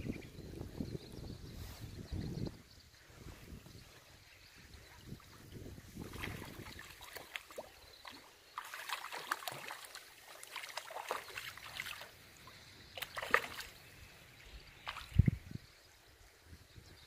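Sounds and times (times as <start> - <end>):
water splashing: 5.1 - 14.0, 14.8 - 15.5.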